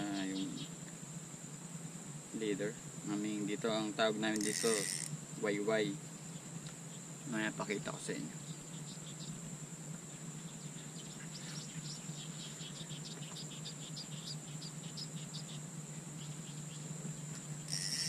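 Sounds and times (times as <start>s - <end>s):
high-pitched insect drone: 0.0s - 18.0s
low steady hum: 0.0s - 18.0s.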